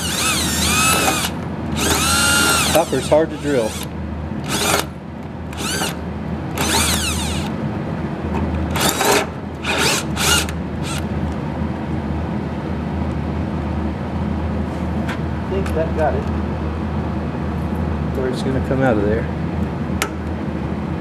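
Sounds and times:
electric drill whining: 0:00.0 - 0:03.9, 0:04.5 - 0:04.9, 0:05.5 - 0:06.0, 0:06.6 - 0:07.5, 0:08.8 - 0:11.0
steady low hum: 0:00.0 - 0:21.0.

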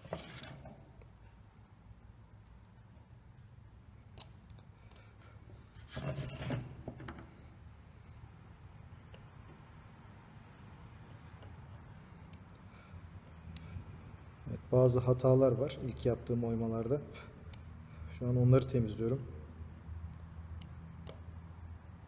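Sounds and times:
knife scraping wood: 0:00.0 - 0:00.8, 0:05.7 - 0:06.9.

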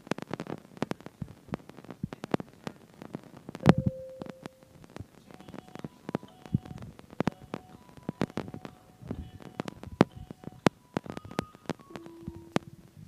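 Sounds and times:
steady low tone: 0:03.6 - 0:13.0.

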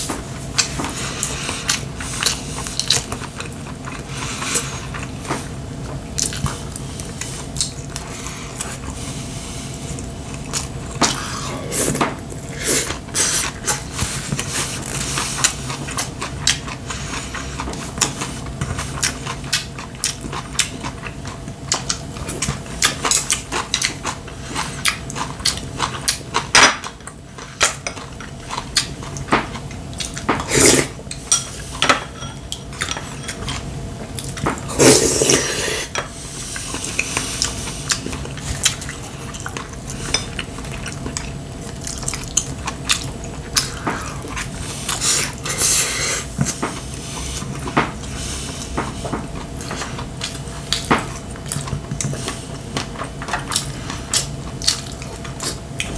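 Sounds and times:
slurping broth: 0:30.4 - 0:31.0, 0:34.7 - 0:36.7.

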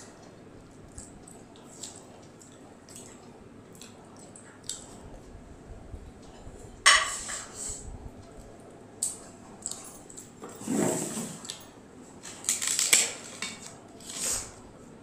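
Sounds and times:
papad snapping and crackling: 0:12.2 - 0:14.2.

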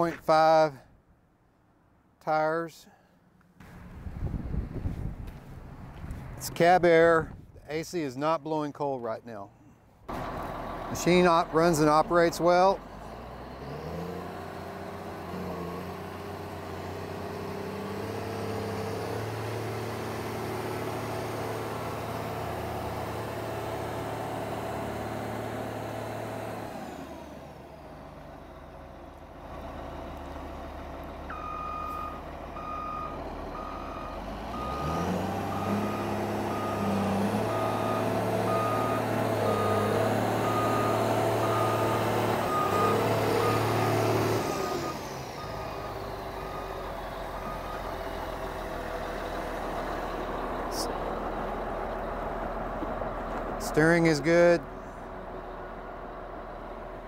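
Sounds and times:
diesel engine running: 0:10.1 - 0:57.0
reversing alarm beeping: 0:31.3 - 0:43.9, 0:47.4 - 0:47.9.

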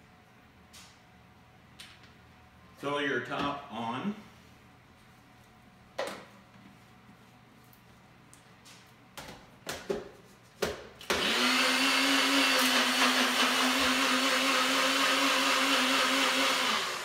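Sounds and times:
blender motor running: 0:11.1 - 0:17.0.

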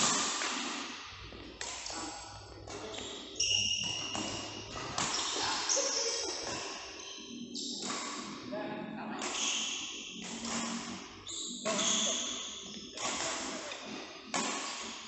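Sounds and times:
racket hitting shuttlecock: 0:00.0 - 0:00.8, 0:01.6 - 0:03.2, 0:03.8 - 0:05.5, 0:07.8 - 0:08.3, 0:09.2 - 0:11.0, 0:11.7 - 0:15.0
shoe squeaks: 0:02.8 - 0:07.9, 0:09.3 - 0:12.9.

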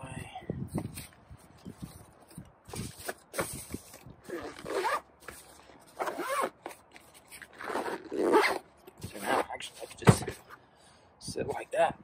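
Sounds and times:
zipper being pulled closed: 0:04.2 - 0:05.1, 0:05.9 - 0:09.5.

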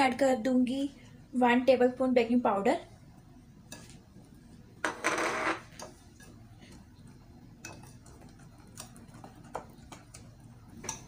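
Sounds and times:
whisk stirring thick batter: 0:07.0 - 0:11.0.

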